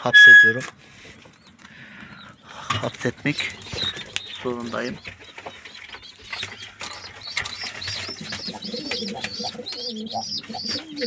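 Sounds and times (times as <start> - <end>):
pigeons cooing: 1.8 - 11.0
high thin pigeon calls: 2.8 - 11.0.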